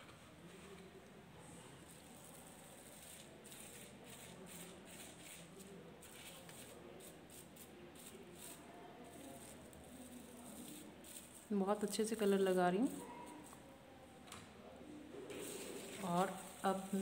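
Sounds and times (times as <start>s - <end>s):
paintbrush scratching on bubble wrap: 1.8s - 13.7s, 15.4s - 17.0s.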